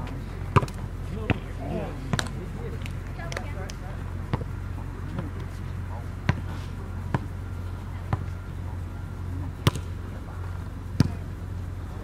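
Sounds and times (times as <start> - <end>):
steady low hum: 0.0 - 12.0
volleyball smacks: 0.5 - 1.4, 2.1 - 3.5, 9.6 - 9.9.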